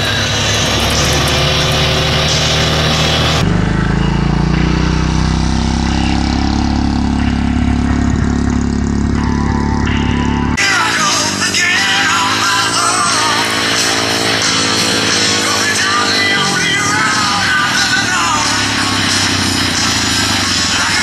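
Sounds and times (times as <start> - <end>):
vehicle engine and road noise: 0.0 - 21.0
dirt bike engine passing: 10.7 - 21.0.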